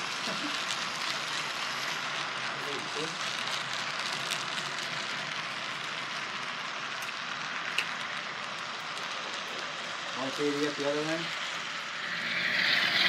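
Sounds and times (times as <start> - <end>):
light clicks of train wheels: 0.0 - 12.1
model train wheels rushing on rail: 0.0 - 13.0.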